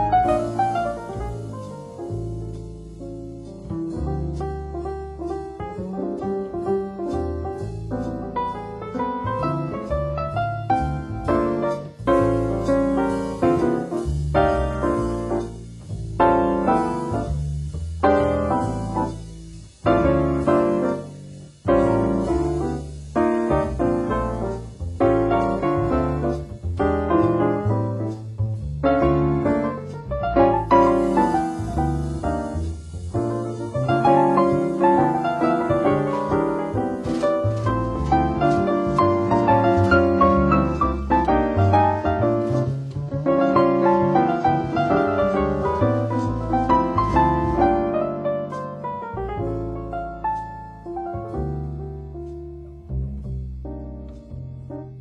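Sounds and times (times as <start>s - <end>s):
low piano bass notes: 0.0s - 55.0s
piano chords: 0.0s - 55.0s.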